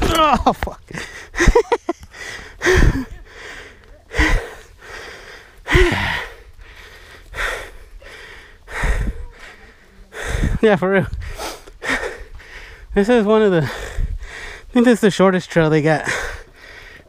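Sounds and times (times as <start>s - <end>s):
person breathing hard: 0.9s - 1.4s, 2.0s - 12.9s, 13.6s - 14.7s, 16.0s - 17.0s.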